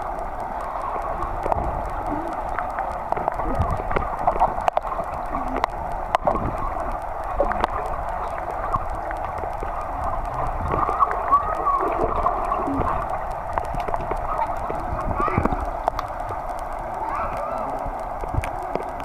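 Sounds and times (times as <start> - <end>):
faint warped voices: 0.0 - 19.0
muffled underwater gurgling hiss: 0.0 - 19.0
sharp underwater clicks: 0.0 - 19.0.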